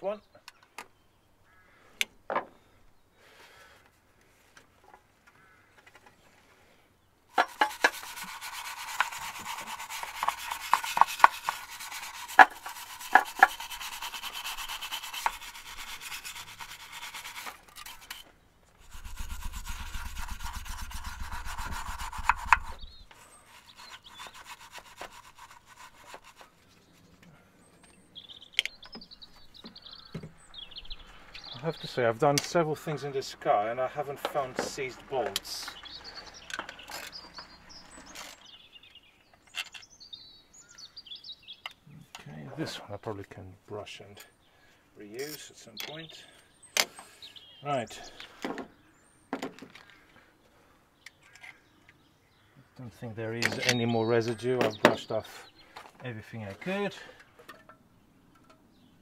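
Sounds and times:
stiff brush scrubbing: 0:07.4 - 0:18.2, 0:18.8 - 0:27.1, 0:29.8 - 0:38.6.

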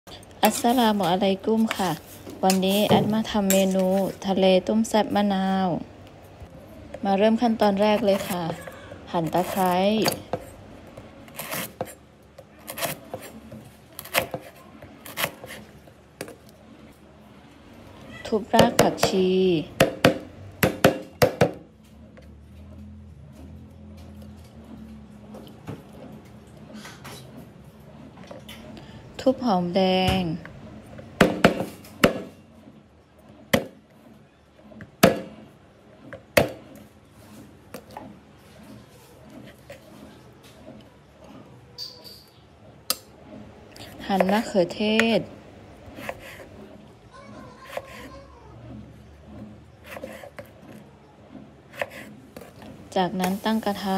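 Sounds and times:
knife slicing on wooden board: 0:11.3 - 0:11.9.

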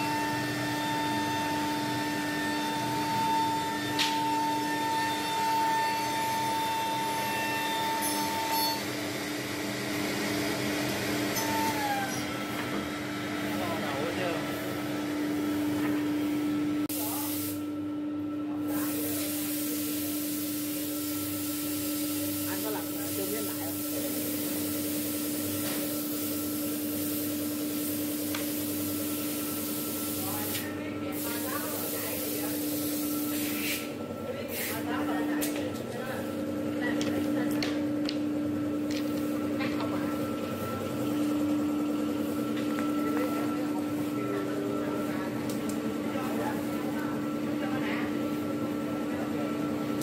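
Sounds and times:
high machine whine: 0:00.0 - 0:16.9
machinery whirring hum: 0:00.0 - 0:50.0.

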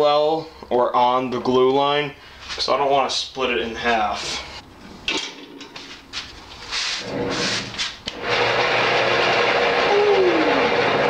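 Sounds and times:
wood lathe motor whirring: 0:07.0 - 0:11.0.

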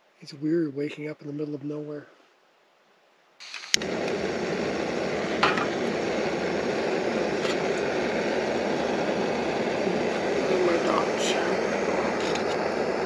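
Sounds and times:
steady rushing noise: 0:03.8 - 0:13.0.

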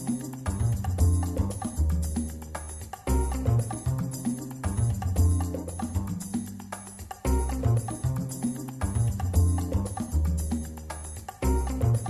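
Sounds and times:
funky instrumental music: 0:00.0 - 0:12.0.

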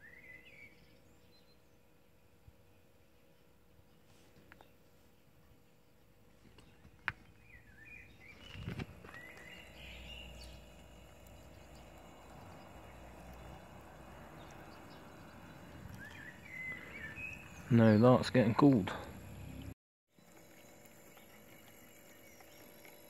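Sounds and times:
birds chirping: 0:00.0 - 0:23.0
low hum: 0:04.7 - 0:19.8.

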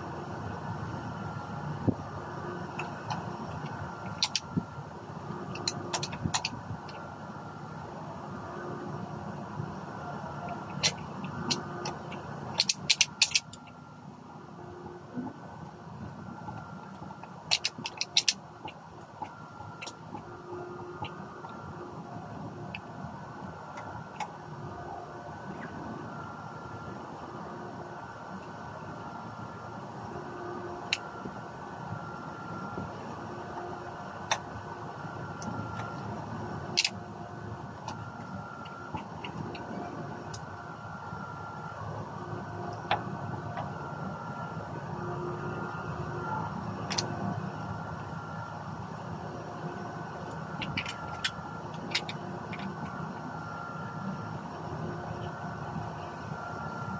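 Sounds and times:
steady background hum: 0:00.0 - 0:56.9
shotgun metallic clicks and rattles: 0:12.6 - 0:13.7.

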